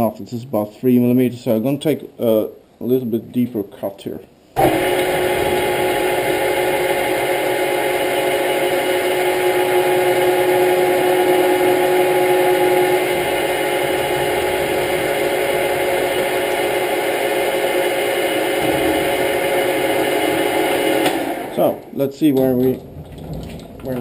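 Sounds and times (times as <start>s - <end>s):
metal lathe whine: 4.6s - 21.8s.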